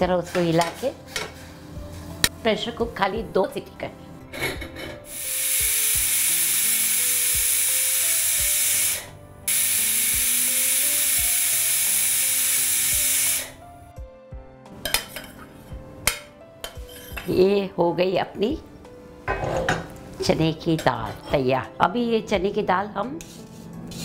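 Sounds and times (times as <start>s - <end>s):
pressure cooker whistling: 5.1s - 13.6s
pot and ladle clinking: 14.8s - 15.5s.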